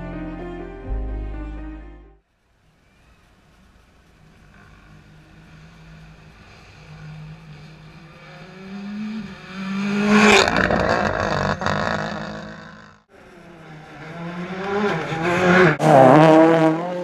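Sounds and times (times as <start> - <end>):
rally car engine passing by: 4.2 - 17.0.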